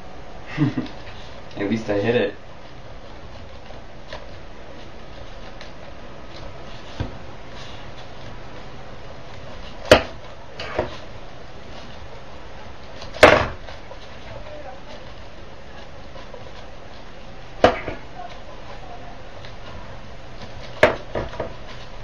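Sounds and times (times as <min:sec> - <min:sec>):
hammer hitting wooden plank: 0:13.2 - 0:13.6, 0:20.8 - 0:21.5.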